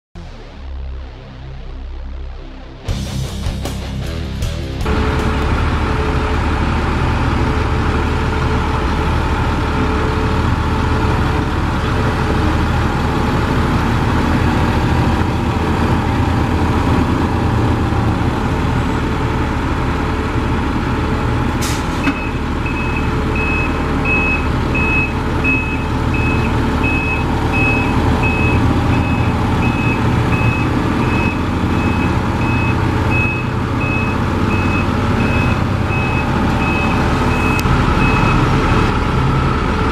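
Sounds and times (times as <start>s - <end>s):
diesel truck engine running: 0.2s - 39.9s
reversing alarm beeping: 22.0s - 38.9s.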